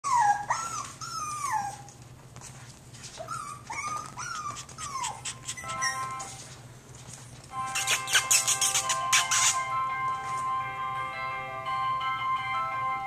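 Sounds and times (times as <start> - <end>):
puppy whimpering: 0.0 - 2.0, 3.1 - 6.4, 7.7 - 9.7
music with held notes: 5.6 - 6.6, 7.5 - 13.0.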